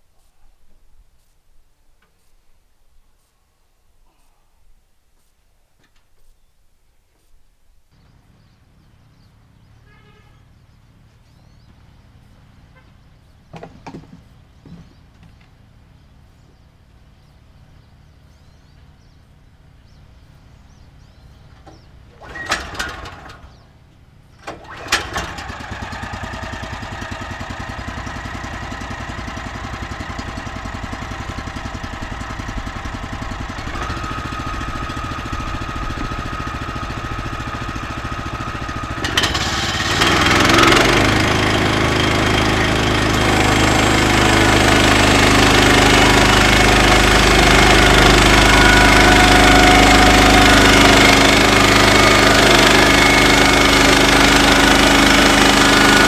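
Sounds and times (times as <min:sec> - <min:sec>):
sawmill gas engine running: 0:19.6 - 0:56.0.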